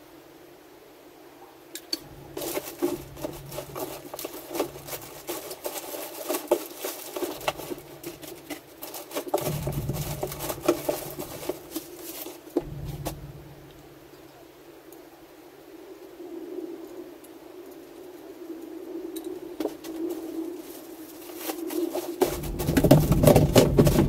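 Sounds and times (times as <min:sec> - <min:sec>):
small metal parts clinking: 0:02.0 - 0:12.3
rustling and scraping: 0:02.0 - 0:14.4, 0:19.6 - 0:24.0.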